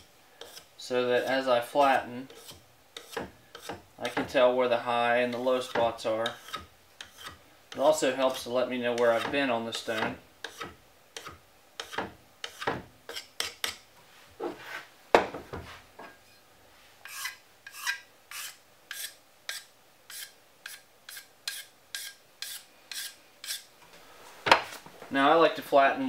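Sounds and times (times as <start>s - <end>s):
pencil scratching on stone: 0.4s - 0.7s, 2.3s - 3.8s.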